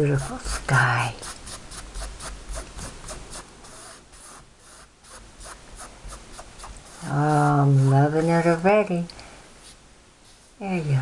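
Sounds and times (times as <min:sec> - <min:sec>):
paintbrush scrubbing canvas: 0:00.0 - 0:08.6.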